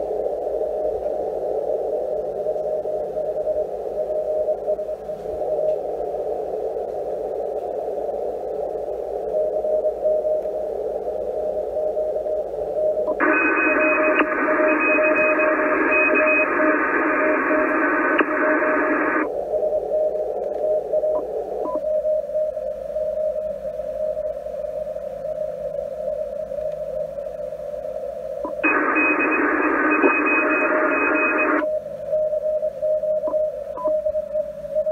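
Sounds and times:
radio band hiss: 0.0s - 34.9s
morse code tone: 13.1s - 19.3s, 28.5s - 31.7s.

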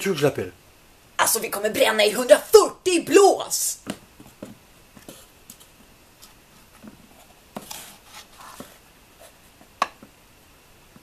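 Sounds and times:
shoes tapping on tiled floor: 3.8s - 5.6s.

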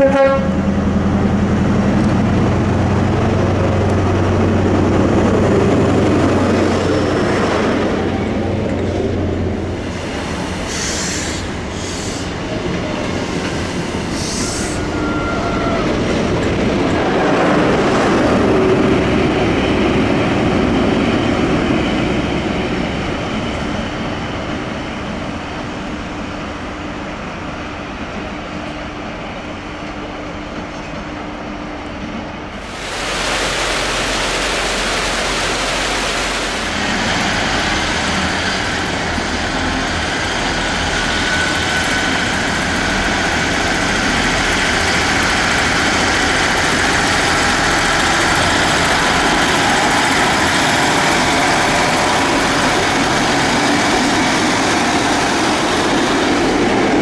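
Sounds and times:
train running on rails: 0.0s - 57.0s
high wheel squeals: 14.2s - 15.9s
steady rush: 32.6s - 38.2s.

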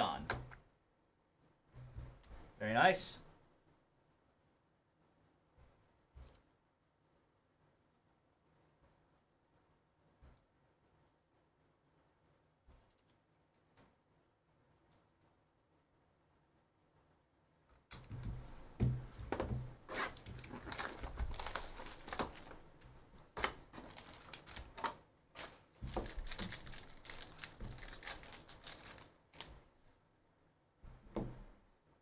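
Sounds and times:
foil wrappers crinkling and tearing: 20.0s - 29.5s.

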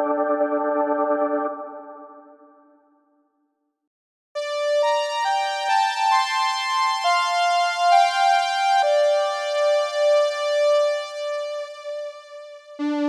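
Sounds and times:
synthesizer string chords: 12.8s - 13.0s.

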